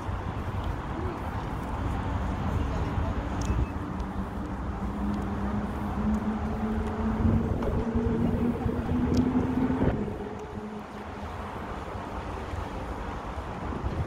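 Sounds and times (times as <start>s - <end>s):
vehicle engine hum: 0.0s - 14.0s
wind rumbling on microphone: 0.0s - 14.0s.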